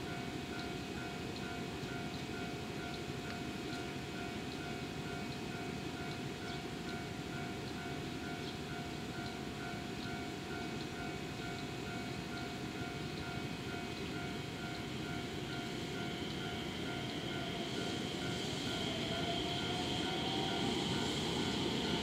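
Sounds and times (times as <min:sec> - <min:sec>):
electronic warning chime pulsing: 0:09.6 - 0:22.0.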